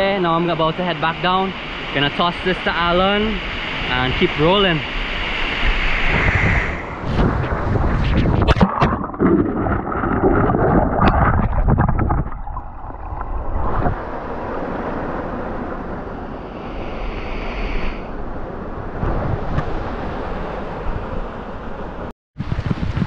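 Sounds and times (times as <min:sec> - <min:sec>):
wind buffeting microphone: 0:03.6 - 0:23.0
stream water flowing: 0:08.5 - 0:15.0.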